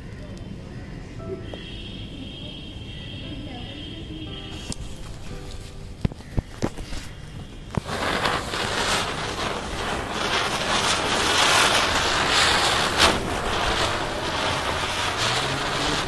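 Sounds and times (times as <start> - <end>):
sharp firework crack: 6.3 - 16.0
firework spinning hiss: 6.6 - 16.0.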